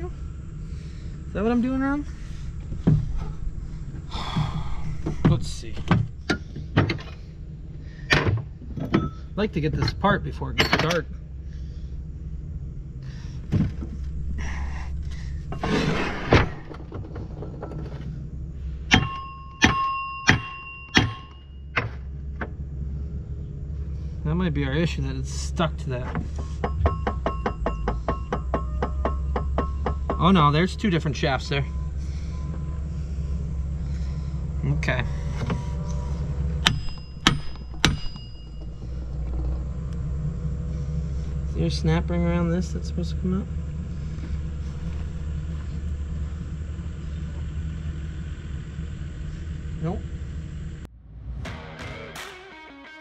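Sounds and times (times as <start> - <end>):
steady low hum: 0.0 - 51.7
hammer striking metal shaft: 18.9 - 22.0, 26.1 - 30.6, 36.6 - 38.7.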